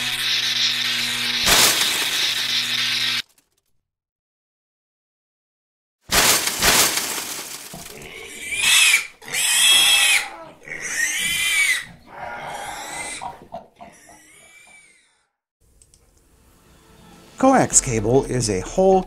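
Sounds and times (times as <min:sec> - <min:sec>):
loud burst of noise: 0:01.4 - 0:03.2
cartoon pig squeals: 0:08.0 - 0:15.2.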